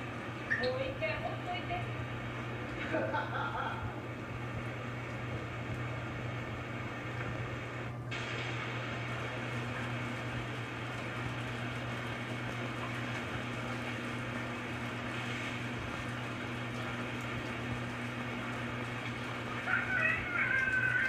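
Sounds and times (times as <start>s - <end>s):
running water: 8.1s - 21.0s.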